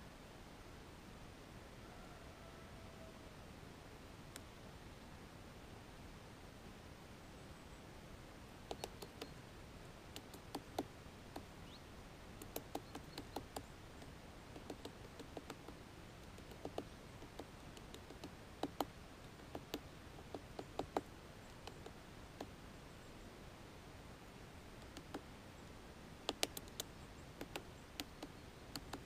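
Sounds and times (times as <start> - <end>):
woodpecker tapping: 8.7 - 9.4, 10.1 - 11.8, 12.4 - 22.6, 24.8 - 25.3, 26.2 - 29.0.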